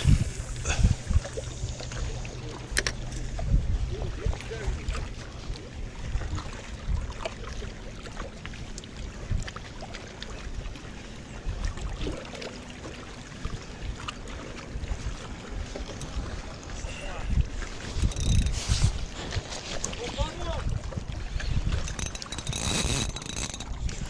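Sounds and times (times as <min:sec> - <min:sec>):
wind buffeting microphone: 0:00.0 - 0:07.2, 0:14.7 - 0:24.0
small clicks: 0:17.8 - 0:18.8, 0:21.8 - 0:23.8.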